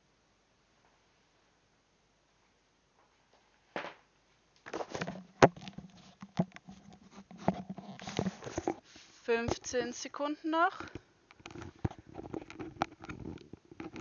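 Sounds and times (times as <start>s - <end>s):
headphones handling noise: 3.0s - 9.8s, 10.7s - 14.0s.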